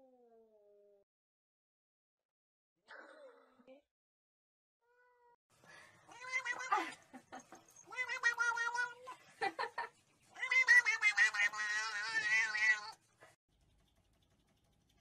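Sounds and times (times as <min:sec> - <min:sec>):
cat yowling: 0:06.1 - 0:06.8, 0:07.9 - 0:09.1, 0:10.4 - 0:13.0.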